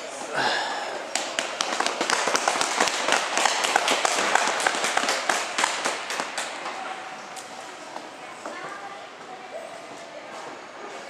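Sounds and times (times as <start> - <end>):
crowd applauding: 1.1 - 6.9.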